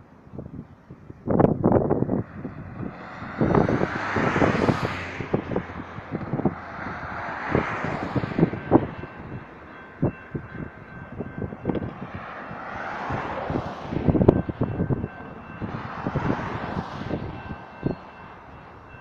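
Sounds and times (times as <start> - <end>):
road vehicles passing: 0.0 - 19.0
wind thumps on microphone: 1.1 - 9.4
crossing bell ringing: 2.1 - 19.0.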